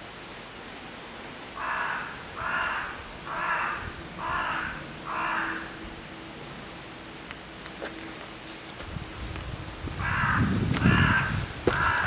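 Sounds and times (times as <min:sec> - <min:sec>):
crow cawing: 0:01.6 - 0:05.8, 0:10.0 - 0:12.0.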